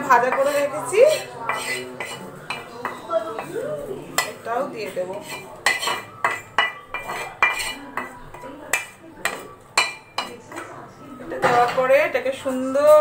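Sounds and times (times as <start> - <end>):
spoon clinking against pan: 0.2 - 3.5, 4.2 - 4.5, 5.1 - 10.7.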